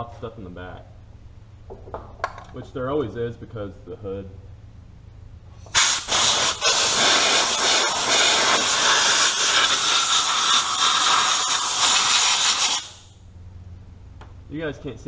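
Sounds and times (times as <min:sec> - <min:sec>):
compressed air hissing: 0:05.6 - 0:13.2.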